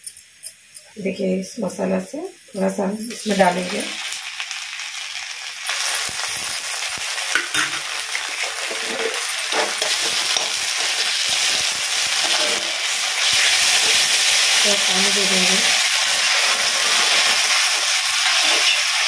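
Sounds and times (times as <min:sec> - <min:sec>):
onions sizzling in oil: 0:00.2 - 0:19.0
spatula scraping pan: 0:07.4 - 0:11.5, 0:12.1 - 0:14.5, 0:16.1 - 0:19.0.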